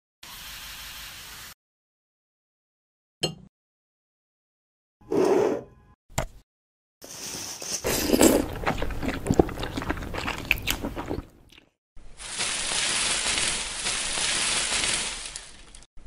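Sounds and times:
crunching and chewing noodles: 0:07.8 - 0:11.8.

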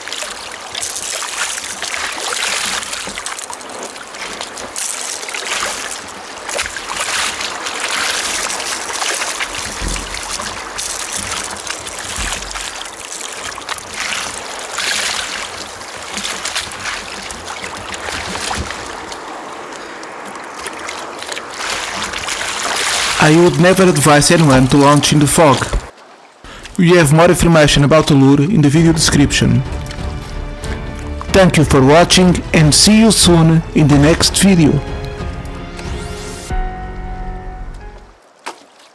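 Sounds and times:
water splashing against kayak: 0:00.0 - 0:26.8, 0:29.4 - 0:31.5, 0:38.2 - 0:38.9
dull knocks: 0:09.5 - 0:12.8.

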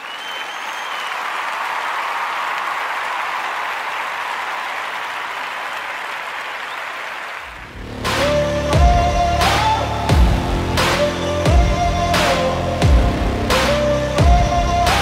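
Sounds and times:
crowd applause: 0:00.0 - 0:08.5
music with heavy bass: 0:07.6 - 0:15.0.

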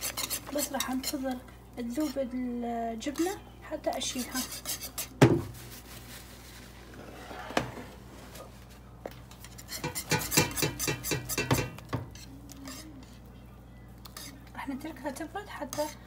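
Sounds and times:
whisk knocking and scraping pot: 0:00.0 - 0:02.2, 0:03.9 - 0:05.9, 0:09.4 - 0:13.2.

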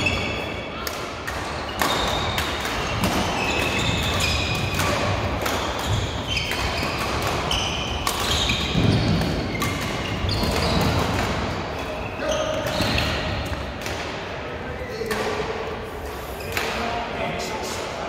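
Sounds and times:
rackets striking shuttlecocks: 0:00.0 - 0:14.3
shoes squeaking on court: 0:01.6 - 0:13.2.

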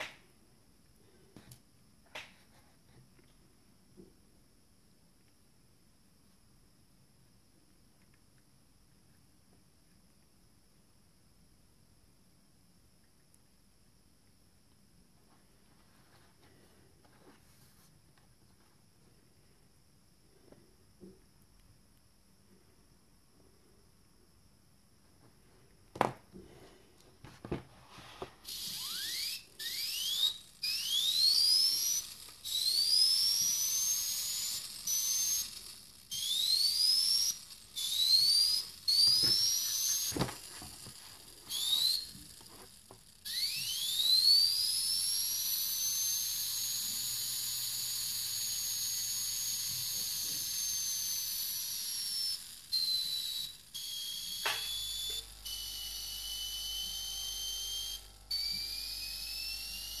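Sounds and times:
airbrush turbine whining: 0:27.8 - 1:00.0.

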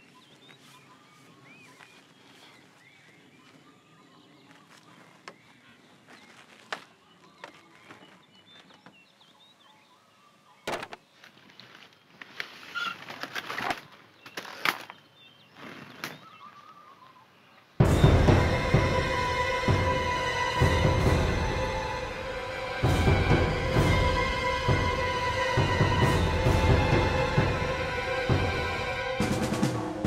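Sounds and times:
footsteps on dry ground: 0:00.0 - 0:09.1
birds chirping: 0:00.0 - 0:30.0
rustling: 0:10.8 - 0:15.0.

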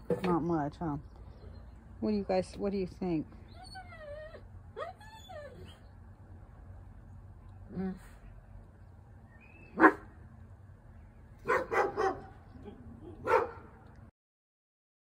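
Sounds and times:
dog barking: 0:09.7 - 0:10.1, 0:11.4 - 0:12.4, 0:13.1 - 0:13.8.

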